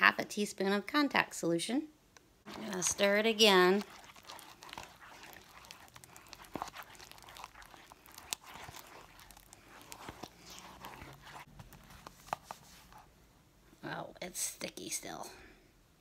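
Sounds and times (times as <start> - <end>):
stick stirring sticky slime: 2.5 - 13.2.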